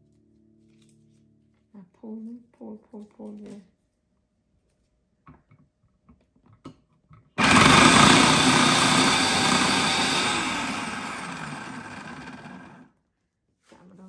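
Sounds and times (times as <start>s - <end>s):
small electric motor running: 7.4s - 12.9s.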